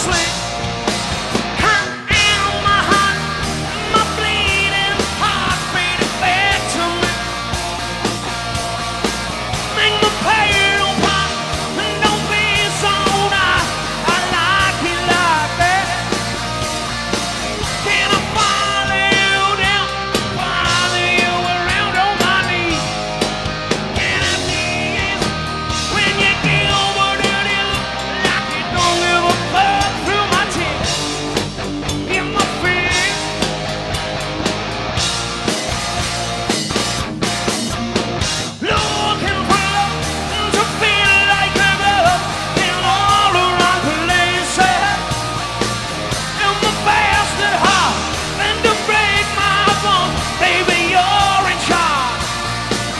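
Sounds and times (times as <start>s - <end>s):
bass guitar: 0.0s - 52.9s
drum kit: 0.0s - 52.9s
electric guitars: 0.0s - 52.9s
person singing: 1.6s - 7.4s, 9.6s - 16.6s, 17.6s - 23.0s, 23.9s - 31.1s, 31.9s - 33.4s, 38.6s - 52.8s.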